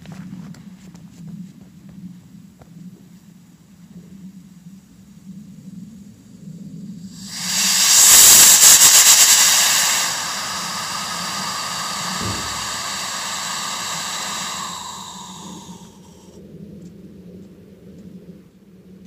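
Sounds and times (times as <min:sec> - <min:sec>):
rocket motor exhaust hissing: 0:07.1 - 0:16.3.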